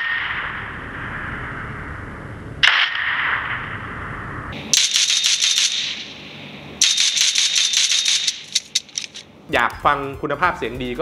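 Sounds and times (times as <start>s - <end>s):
rapid automatic gunfire: 4.7s - 6.2s, 6.8s - 9.2s.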